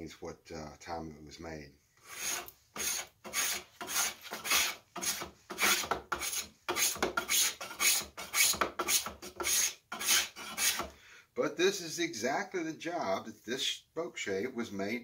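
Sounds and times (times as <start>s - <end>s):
spokeshave shaving wood: 2.1s - 10.9s.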